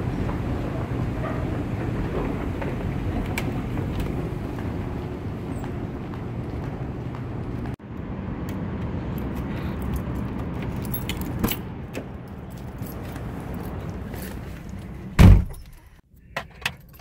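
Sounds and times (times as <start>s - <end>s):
keys jingling: 9.1s - 15.9s, 16.6s - 17.0s.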